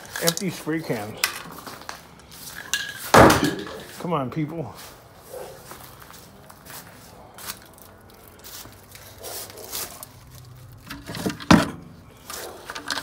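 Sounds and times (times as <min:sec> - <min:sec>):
junk scraping on concrete floor: 0:00.0 - 0:04.0, 0:10.7 - 0:13.0.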